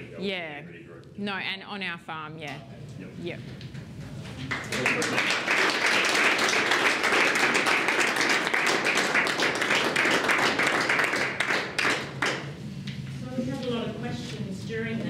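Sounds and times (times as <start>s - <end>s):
audience applauding: 4.4s - 12.6s.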